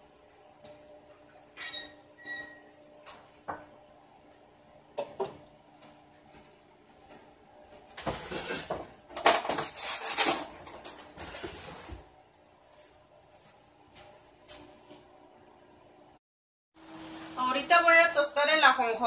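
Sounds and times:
loud clattering and rustling: 0:08.0 - 0:11.7.

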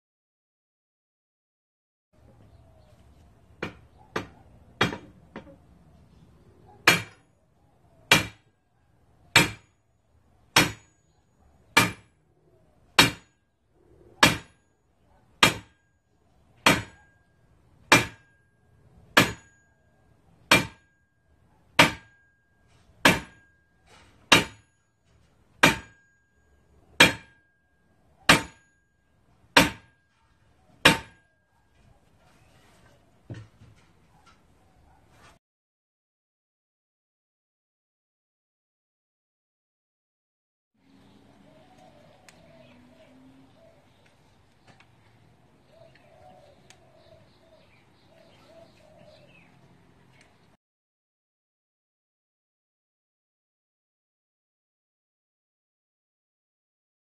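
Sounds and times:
sledgehammer clanging on steel pipe: 0:17.9 - 0:18.5, 0:19.2 - 0:19.7, 0:21.8 - 0:26.3, 0:27.0 - 0:27.5, 0:28.3 - 0:28.9, 0:30.8 - 0:31.3.

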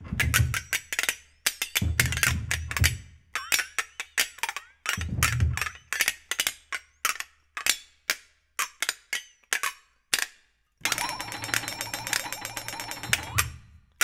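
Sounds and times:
flexatone shaken tremolo: 0:10.8 - 0:13.8
flexatones struck: 0:10.8 - 0:13.8.

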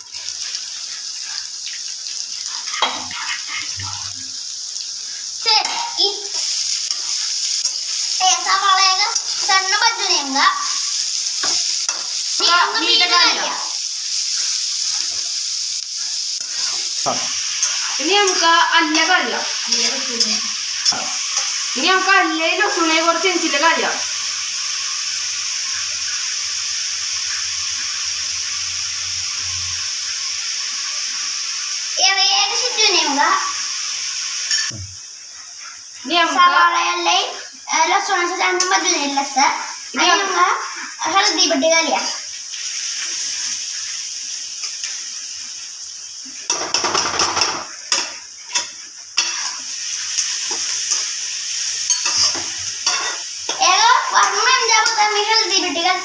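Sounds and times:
food sizzling in a pan: 0:00.0 - 0:56.0
metal spoon scraping a pan: 0:05.6 - 0:09.6, 0:16.0 - 0:21.6, 0:46.5 - 0:55.3
spoon clinking against pan: 0:51.9 - 0:53.2.

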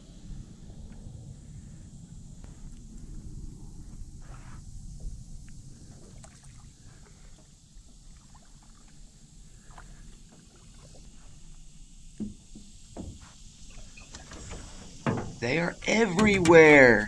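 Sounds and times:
water sloshing around boat: 0:04.3 - 0:17.0
faint ticks and drips: 0:04.9 - 0:17.0.

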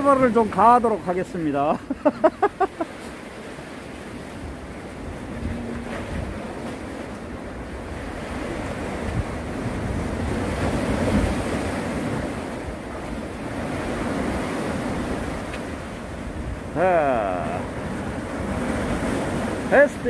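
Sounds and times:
sea waves washing on breakwater: 0:00.0 - 0:20.0
wind on microphone: 0:04.1 - 0:16.8.

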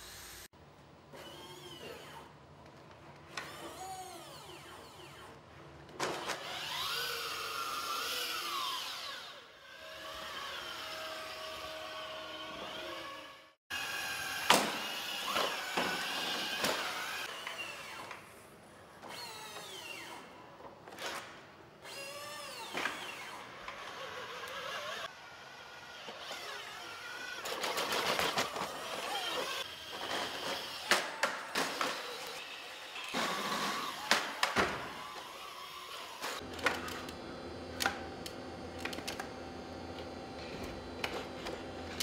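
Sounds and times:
robot motors whining: 0:01.1 - 0:02.3, 0:03.3 - 0:05.4, 0:06.2 - 0:18.1, 0:21.9 - 0:31.0.

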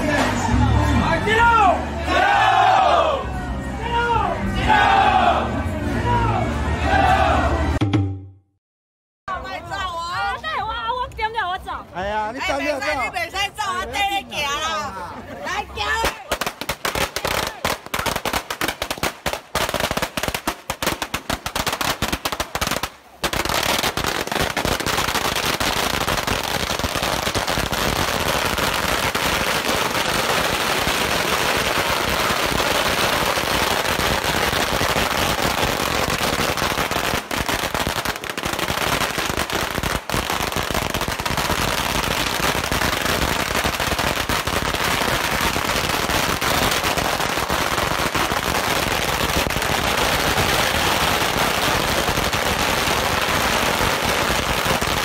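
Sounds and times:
firecrackers exploding: 0:15.9 - 0:55.0.

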